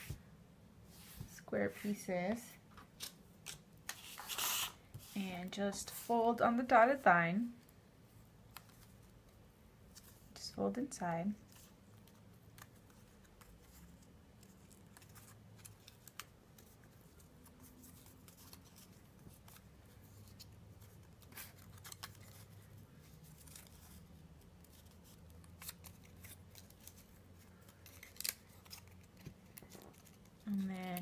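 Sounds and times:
paper clicks and rustles: 11.5s - 31.0s.

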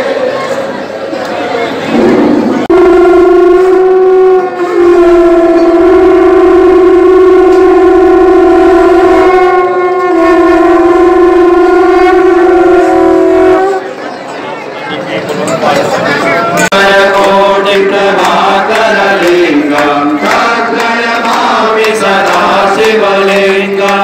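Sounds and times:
conch shells blowing: 2.7s - 14.0s.

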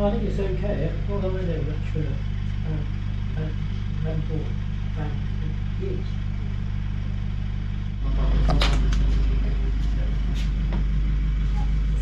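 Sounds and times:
low mechanical hum: 0.0s - 12.0s
footsteps in back of van: 8.5s - 12.0s.

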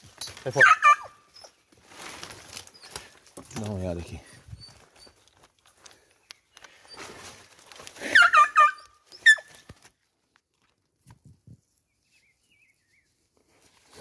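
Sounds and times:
dead leaves rustling: 0.0s - 10.8s
dog yelping: 0.5s - 1.6s, 8.0s - 9.6s.

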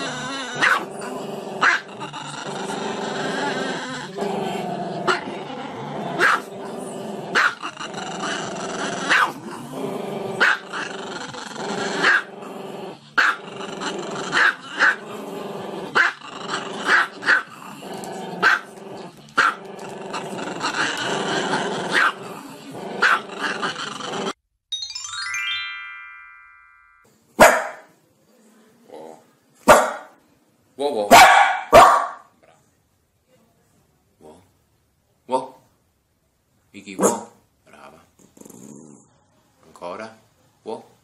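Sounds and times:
dog growling: 0.0s - 24.4s, 37.7s - 39.2s
dog barking sharply: 27.4s - 27.9s, 29.7s - 30.1s, 31.1s - 32.3s, 37.0s - 37.4s.

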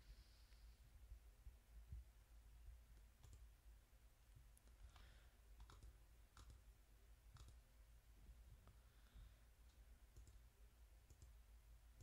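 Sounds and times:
low background hum: 0.0s - 12.0s
mouse and keyboard clicks: 4.6s - 6.7s, 7.3s - 7.6s.

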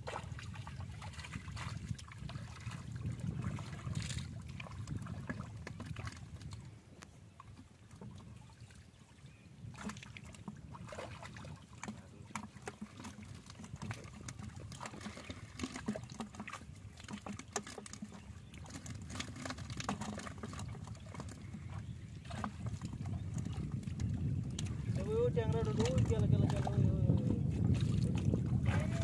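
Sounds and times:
hands splashing in muddy water: 9.7s - 21.6s.

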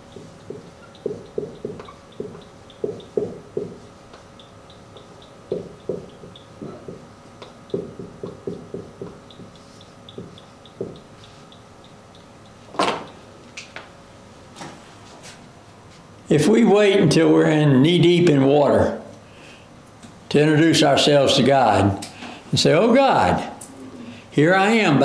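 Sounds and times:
marker squeaking on whiteboard: 0.8s - 3.2s.

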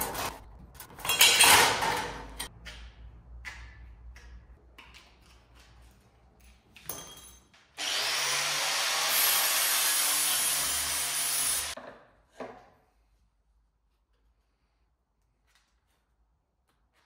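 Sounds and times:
angle grinder on sheet steel: 7.8s - 11.8s.

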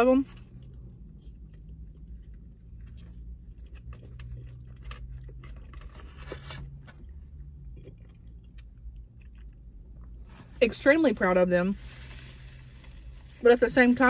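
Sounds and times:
steady low hum: 0.0s - 14.0s
person chewing food: 0.3s - 10.3s.

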